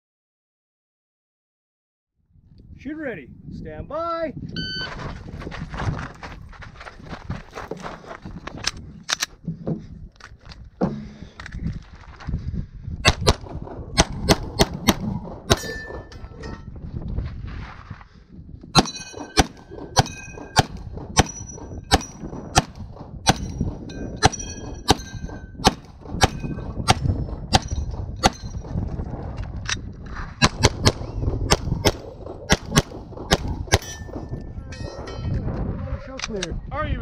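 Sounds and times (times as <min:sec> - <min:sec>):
pistol shots: 0:13.1 - 0:16.0, 0:24.2 - 0:28.5, 0:30.4 - 0:34.2
steel targets clanging: 0:18.8 - 0:22.3, 0:33.8 - 0:35.4.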